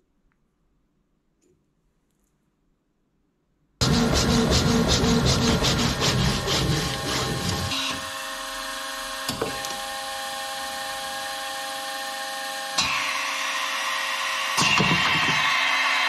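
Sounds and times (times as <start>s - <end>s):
steady machine hum: 3.8s - 9.2s
saw cutting metal: 3.8s - 16.0s.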